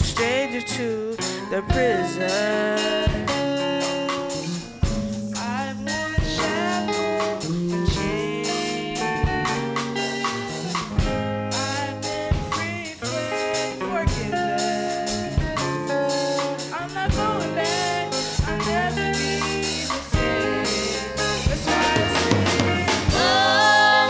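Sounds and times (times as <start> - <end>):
drum kit: 0.0 - 24.0
held backing chords: 0.0 - 24.0
women singing into microphones: 19.6 - 24.0.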